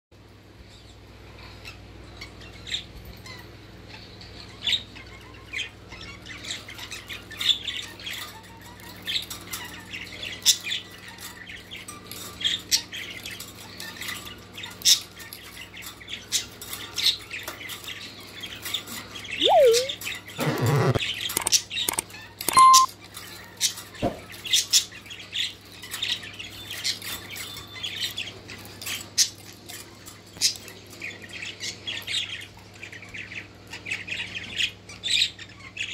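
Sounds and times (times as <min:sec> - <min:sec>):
parakeet squawking and chirping: 0:19.3 - 0:22.9.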